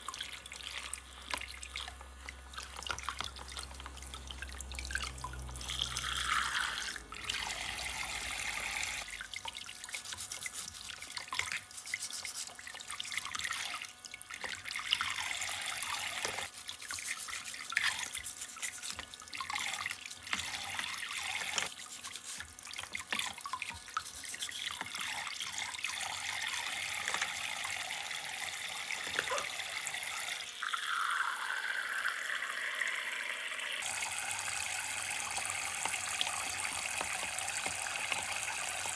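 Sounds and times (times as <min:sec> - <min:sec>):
water drips: 0:00.0 - 0:15.4
water trickling into basin: 0:00.0 - 0:38.9.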